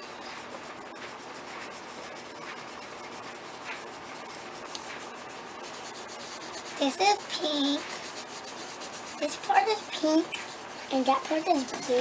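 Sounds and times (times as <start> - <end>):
pencil scratching on paper: 0.1 - 12.0.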